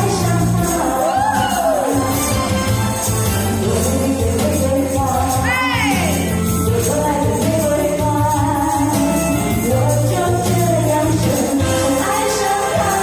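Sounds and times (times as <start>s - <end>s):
woman singing pop ballad: 0.0s - 2.5s, 3.5s - 13.0s
karaoke backing track: 0.0s - 13.0s.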